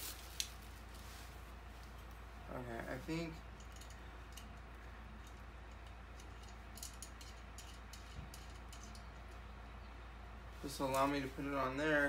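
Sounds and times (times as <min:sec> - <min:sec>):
steady low hum: 0:00.0 - 0:12.0
small hardware parts clicking: 0:03.6 - 0:09.4.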